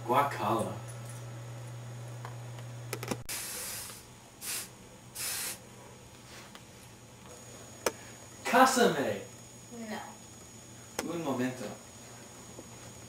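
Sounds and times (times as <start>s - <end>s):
aerosol can spraying: 3.3s - 5.6s.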